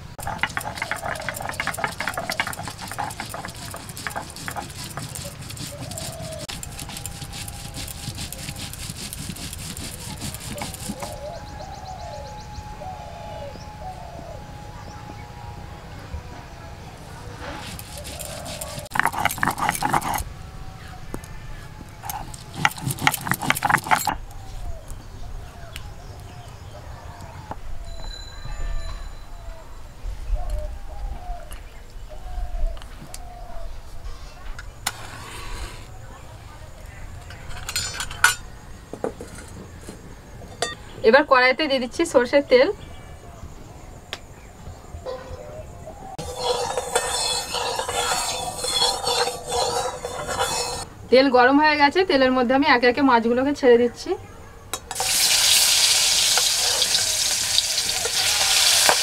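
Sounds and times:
stone roller grinding on stone slab: 0.2s - 11.3s, 17.4s - 20.3s, 22.0s - 24.2s, 46.2s - 50.9s, 54.9s - 59.0s.

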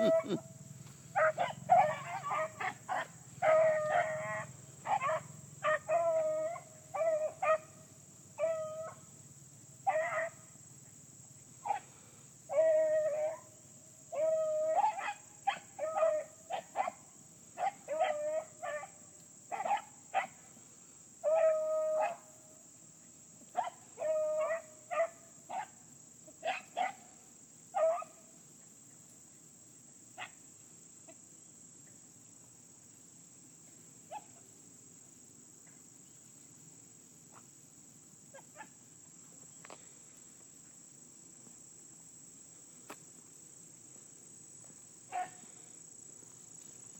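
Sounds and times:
dogs baying and barking: 0.0s - 0.5s, 1.1s - 7.8s, 9.8s - 10.4s, 14.2s - 20.4s, 21.2s - 22.3s, 23.5s - 27.0s, 27.8s - 28.2s, 45.1s - 45.6s
high drone of insects: 0.0s - 46.9s.

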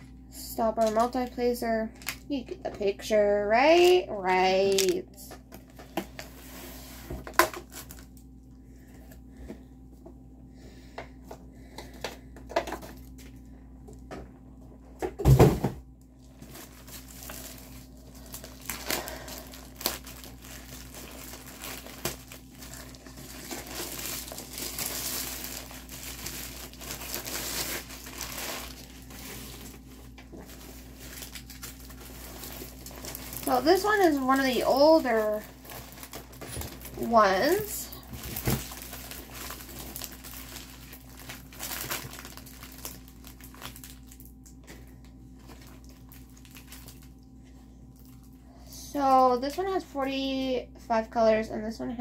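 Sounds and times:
plastic wrapping crinkling: 0.6s - 8.4s, 16.1s - 48.4s.

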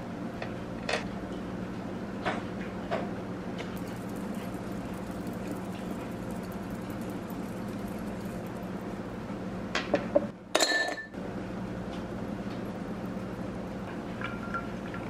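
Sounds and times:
glass clinking on countertop: 10.6s - 11.1s.

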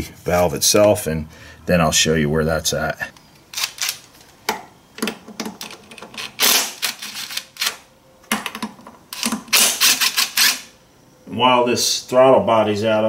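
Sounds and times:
ratchet wrench clicking: 9.2s - 10.7s.

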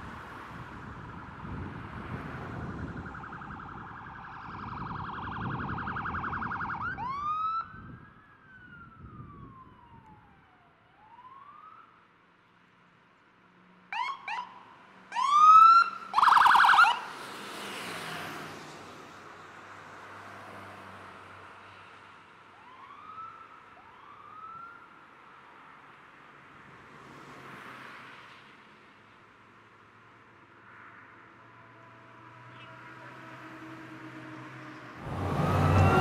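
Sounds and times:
vehicles rushing past: 0.0s - 7.9s, 13.7s - 22.3s, 26.4s - 36.0s
emergency vehicle sirens: 0.0s - 12.4s, 13.9s - 25.7s, 31.2s - 36.0s.

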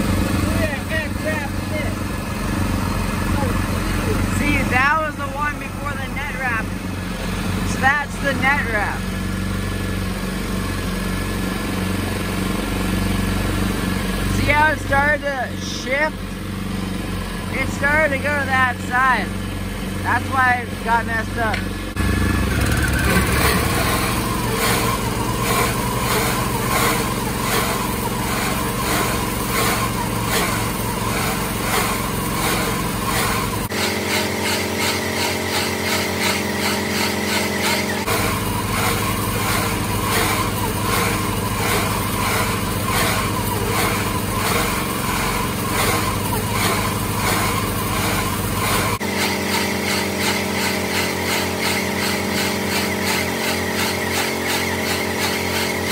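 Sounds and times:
small gas engine drone: 0.0s - 55.9s
bale wrapper rhythmic pulse: 23.1s - 55.9s.

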